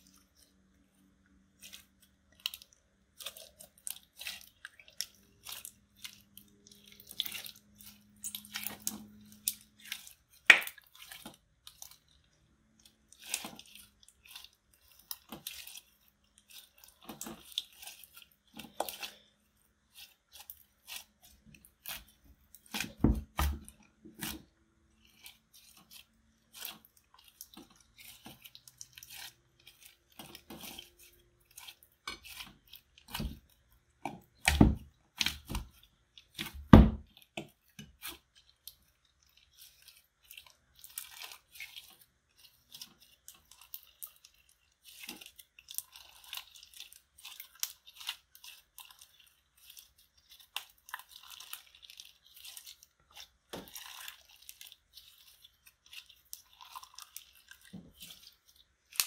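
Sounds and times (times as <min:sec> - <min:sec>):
deep slime squishes: 0:00.0 - 0:59.0
slime crackling and popping: 0:01.6 - 0:11.9, 0:39.4 - 0:59.0.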